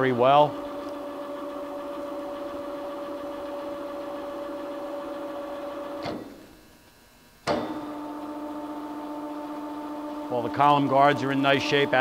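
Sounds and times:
electric motor humming: 0.0s - 6.6s, 7.6s - 12.0s
motor stopping clunk: 0.5s - 6.6s, 7.4s - 10.3s.

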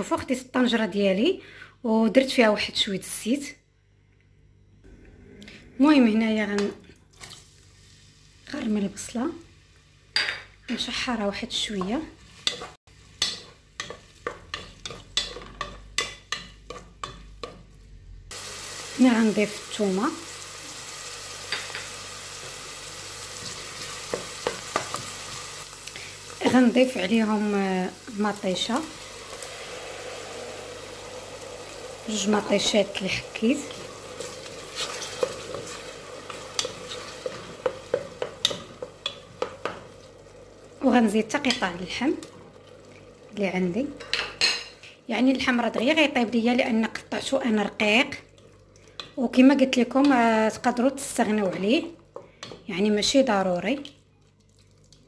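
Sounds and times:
onion frying in oil: 10.8s - 55.0s
wooden spoon scraping a metal pot: 32.1s - 39.8s.

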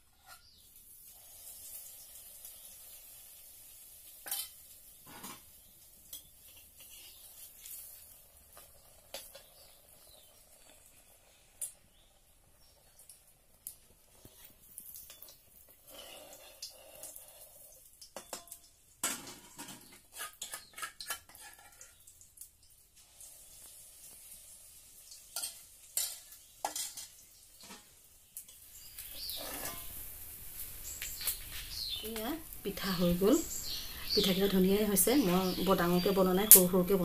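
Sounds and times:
batter sizzling in oil: 0.1s - 37.0s
metal ladle scraping a wok: 6.4s - 7.8s, 19.8s - 21.9s, 28.6s - 30.1s.

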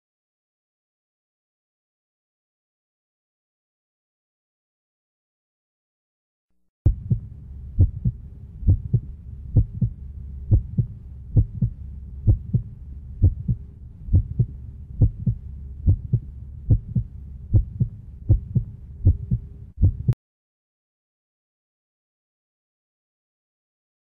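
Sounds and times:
heartbeat thumps: 6.9s - 20.2s
steady low hum: 6.9s - 20.2s.

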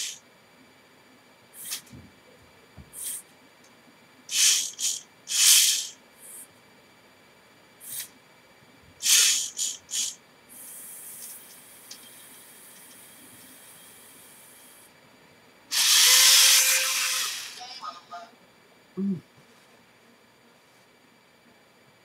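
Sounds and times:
steady hiss: 0.0s - 0.2s, 4.3s - 6.5s, 9.0s - 15.0s
motor whirring: 4.3s - 6.0s, 9.0s - 10.2s, 15.7s - 17.8s.

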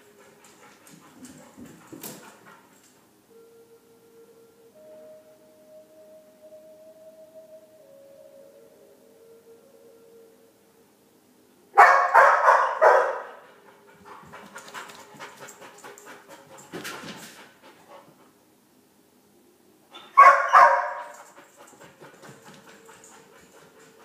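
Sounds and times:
dog panting: 0.0s - 3.0s, 13.4s - 18.4s, 21.1s - 24.0s
dog barking loudly: 11.8s - 13.4s, 20.2s - 21.1s.

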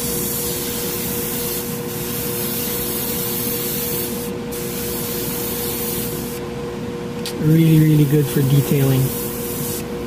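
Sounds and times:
airbrush spraying air hiss: 0.0s - 6.4s, 8.4s - 10.0s
steady hum: 0.0s - 10.0s.

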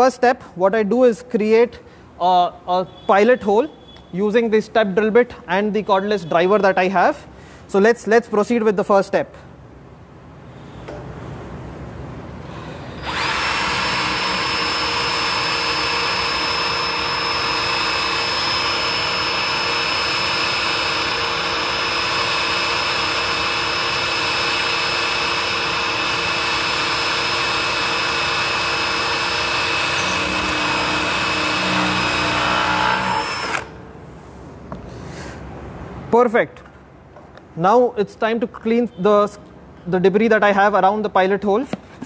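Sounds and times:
cordless drill whining through steel: 12.5s - 33.8s.

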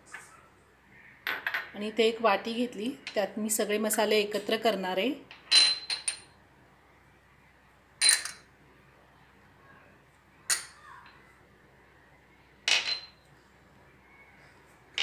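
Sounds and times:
spoon clinking against bowl: 10.5s - 10.8s.

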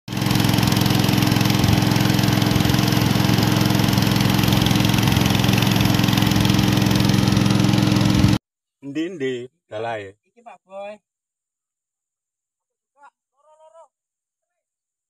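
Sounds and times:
small boat engine running: 0.1s - 8.4s.

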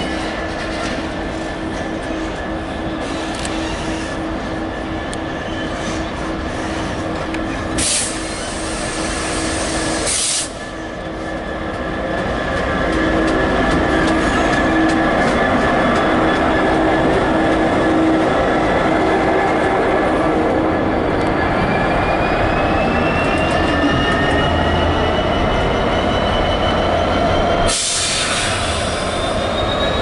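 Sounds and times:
diesel locomotive engine humming: 0.0s - 30.0s.

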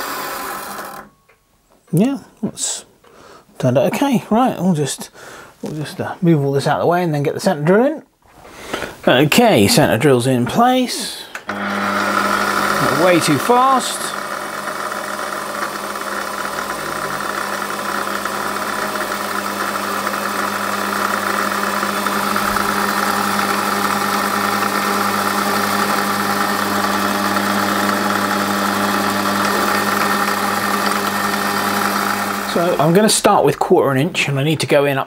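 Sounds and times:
metal lathe motor hum: 0.0s - 1.1s, 11.5s - 33.0s.

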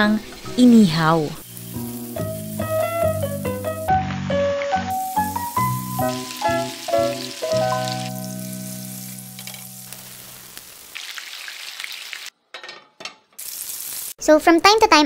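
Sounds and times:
chicken sizzling in a pan: 0.2s - 12.4s, 13.4s - 14.2s
background music: 0.5s - 10.0s.

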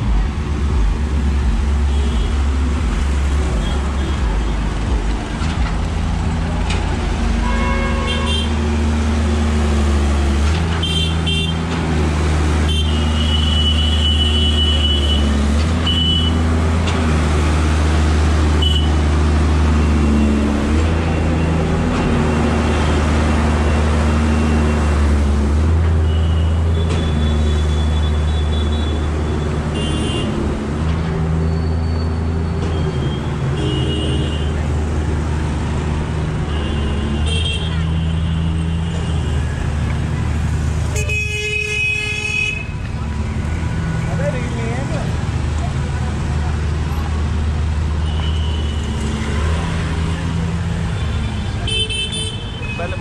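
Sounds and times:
vehicle engines running: 0.0s - 53.0s
car horns honking: 7.4s - 8.7s, 10.7s - 11.7s, 12.6s - 16.5s, 18.5s - 19.0s, 26.0s - 30.5s, 32.7s - 34.6s, 36.3s - 39.5s, 40.9s - 42.8s, 50.9s - 53.0s.

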